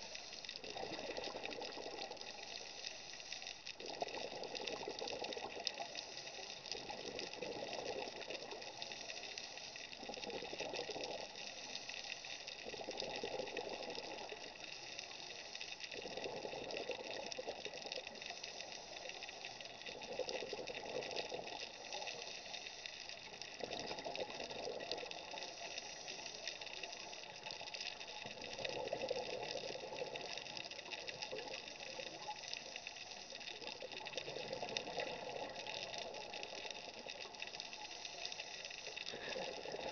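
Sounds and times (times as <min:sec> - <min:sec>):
steady hiss: 0:00.0 - 0:39.9
scuba exhaled bubbles rushing: 0:00.6 - 0:02.7, 0:03.8 - 0:06.0, 0:06.7 - 0:08.9, 0:10.0 - 0:11.4, 0:12.6 - 0:14.6, 0:15.9 - 0:18.3, 0:23.6 - 0:25.5.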